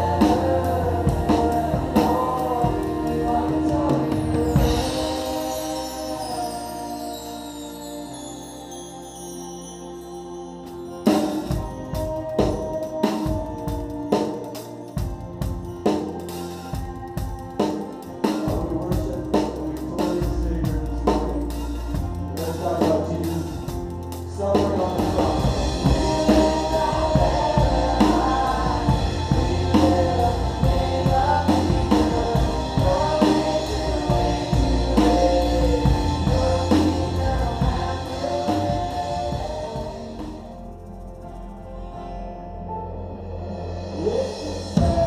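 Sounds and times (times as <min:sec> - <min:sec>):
singing: 0:00.0 - 0:08.3, 0:16.2 - 0:40.7, 0:43.9 - 0:45.0
live band with drums and guitars: 0:00.0 - 0:45.0.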